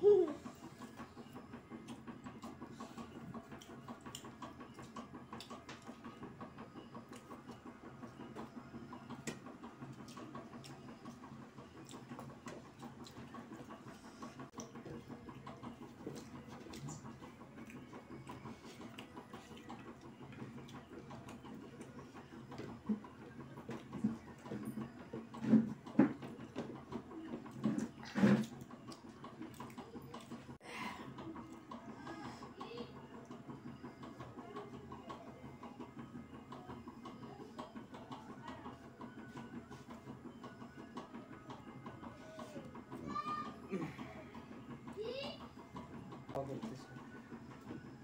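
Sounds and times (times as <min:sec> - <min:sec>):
people chewing: 0:11.8 - 0:21.9.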